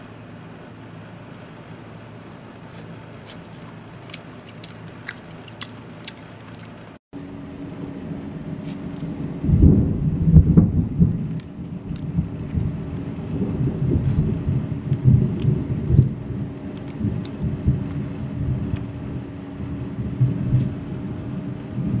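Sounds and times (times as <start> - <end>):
crayfish shells cracking: 3.2 - 7.0, 11.3 - 13.2, 14.9 - 18.0
low rumble: 7.4 - 22.0.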